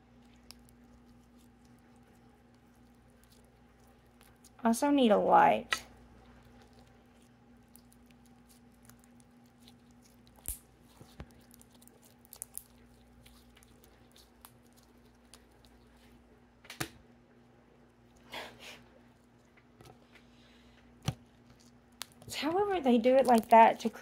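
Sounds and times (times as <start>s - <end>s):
slime squeezed and stretched: 6.4s - 16.0s.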